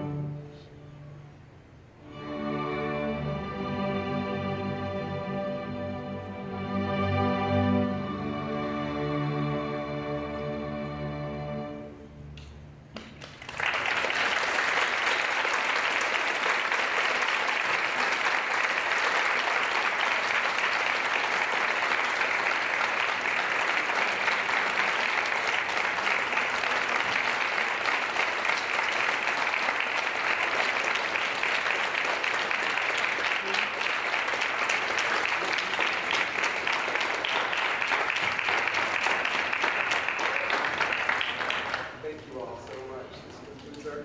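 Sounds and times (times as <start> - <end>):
audience applause: 13.0 - 43.0.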